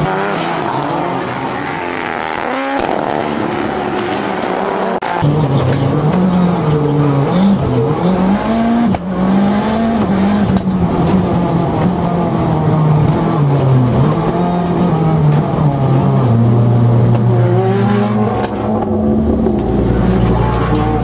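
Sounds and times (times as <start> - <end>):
race car engine running hard: 5.2 - 21.0.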